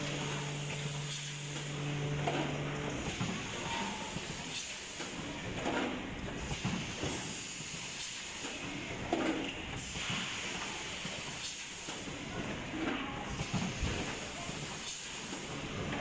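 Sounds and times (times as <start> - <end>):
machine hissing and rattling: 0.0 - 16.0.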